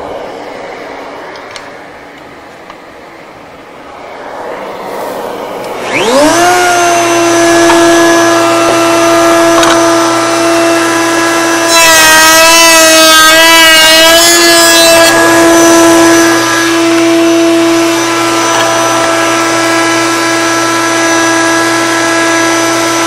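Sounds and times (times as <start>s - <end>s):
router whining: 3.9s - 23.0s
router cutting wood: 5.4s - 23.0s.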